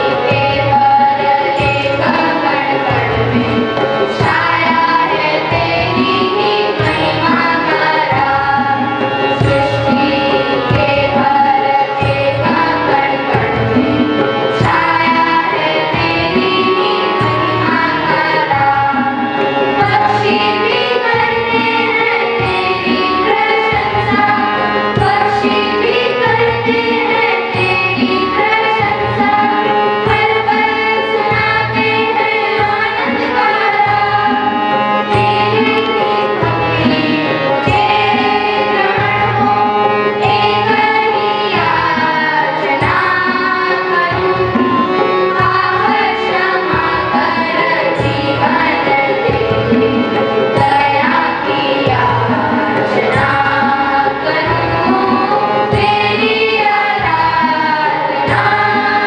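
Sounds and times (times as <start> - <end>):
children's choir singing: 0.0 - 59.0
harmonium: 0.0 - 59.0
tabla and conga drums: 0.0 - 59.0.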